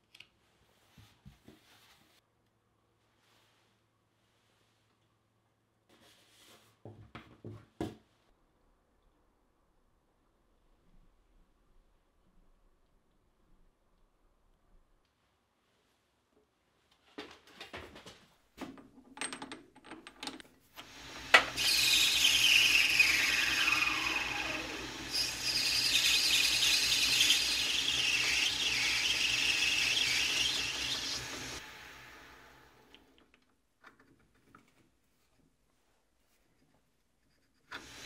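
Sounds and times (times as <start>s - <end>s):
lathe motor hum: 20.8s - 32.9s.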